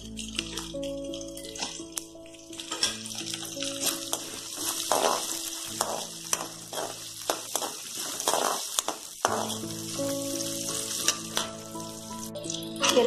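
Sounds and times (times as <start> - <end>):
food sizzling in hot oil: 0.0 - 13.0
steel ladle scraping pan: 2.6 - 11.7.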